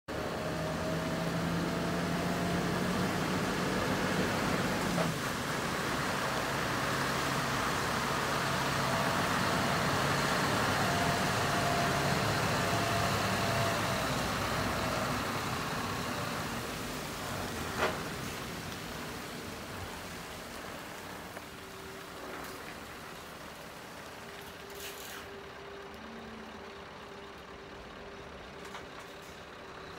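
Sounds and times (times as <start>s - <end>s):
diesel truck engine idling: 18.8s - 29.9s.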